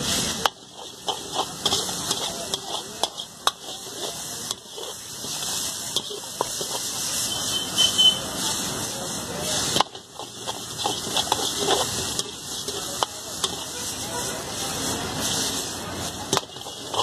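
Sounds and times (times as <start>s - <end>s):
wok sizzling: 0.0s - 17.0s
metal ladle clanking on wok: 0.3s - 6.9s, 9.6s - 13.7s, 16.2s - 17.0s.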